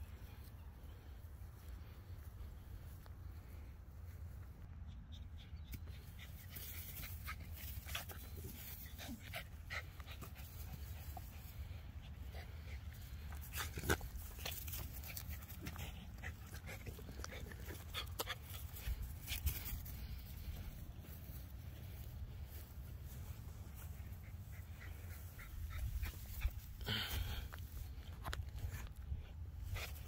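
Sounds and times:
dog panting: 5.2 - 20.6.

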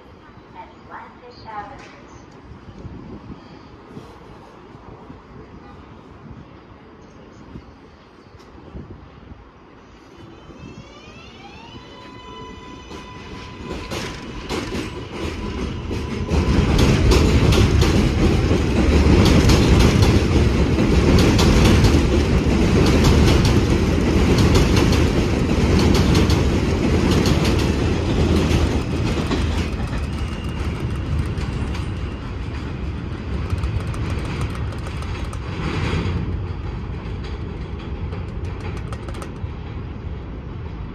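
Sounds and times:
train wheels clacking on rails: 12.8 - 40.9.

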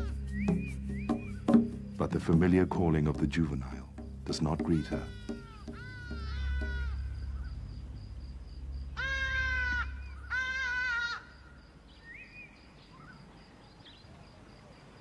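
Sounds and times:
small bird chirp: 0.0 - 2.0
eagle calling: 0.0 - 2.6, 3.6 - 7.7, 8.9 - 13.2.

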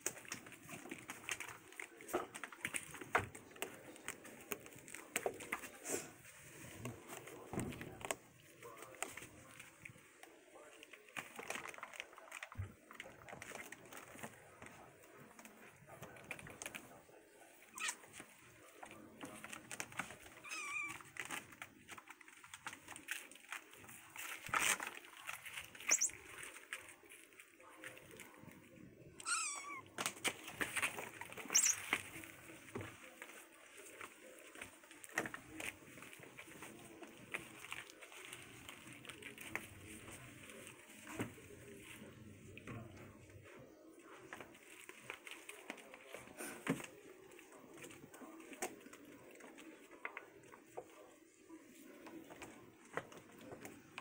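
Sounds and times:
kittens rustling: 0.0 - 54.0
kitten mewing: 20.4 - 21.0, 29.2 - 29.9.

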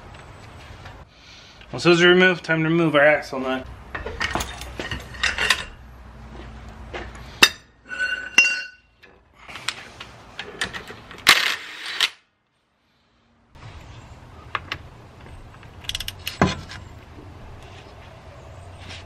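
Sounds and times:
metal clinks and knocks of wrench: 3.9 - 5.8.

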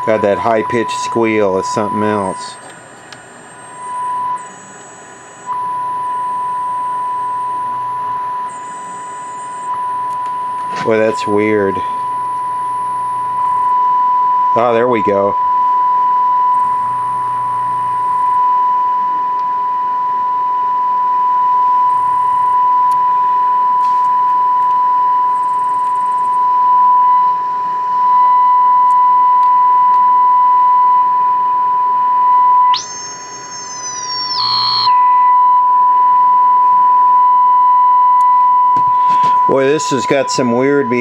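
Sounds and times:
piercing radio test tone: 0.0 - 41.0
high-pitched squeal: 32.6 - 35.6.

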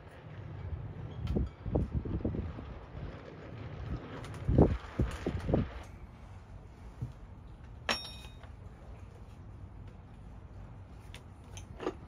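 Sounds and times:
low background hum: 0.0 - 12.0
short metallic clink: 7.9 - 8.6.

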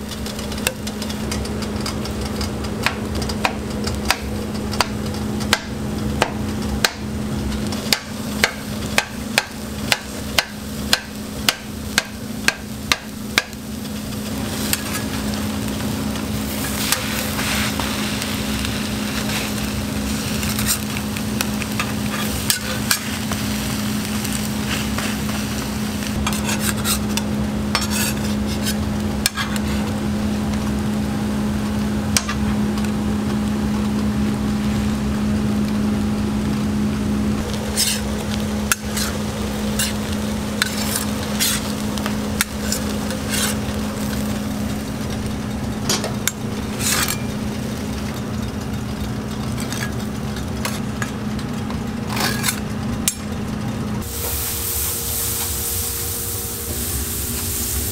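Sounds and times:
steel spatula clicking on griddle: 0.0 - 23.4, 26.1 - 29.9, 37.7 - 53.3
food sizzling on griddle: 0.0 - 57.9
steady low hum: 0.0 - 57.9.

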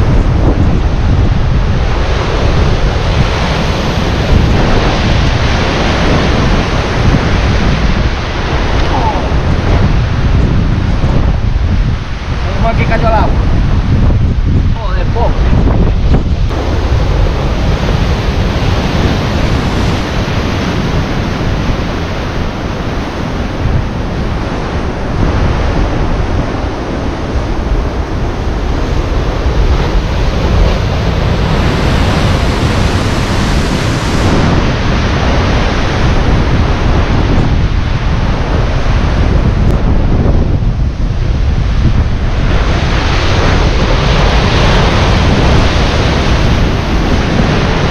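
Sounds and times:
sea surf washing against shore: 0.0 - 47.9
wind buffeting microphone: 0.0 - 47.9.

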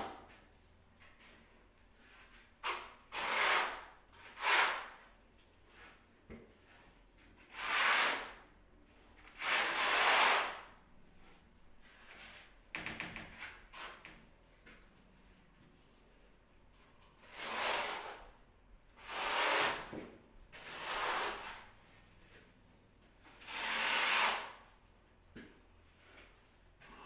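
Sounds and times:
trowel scraping a wall: 2.0 - 6.0, 6.6 - 8.4, 9.2 - 10.7, 17.2 - 18.3, 18.9 - 22.5, 23.2 - 24.6.

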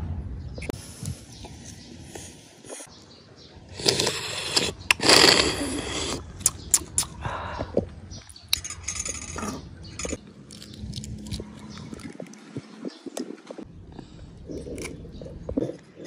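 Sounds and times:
person chewing: 3.7 - 7.2, 9.2 - 12.5, 14.0 - 16.0
person slurping broth: 3.7 - 7.4.

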